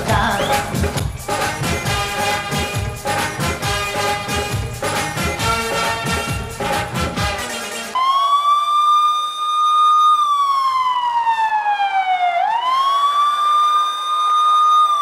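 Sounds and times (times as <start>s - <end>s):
background music: 0.0s - 8.2s
wailing siren: 7.9s - 15.0s.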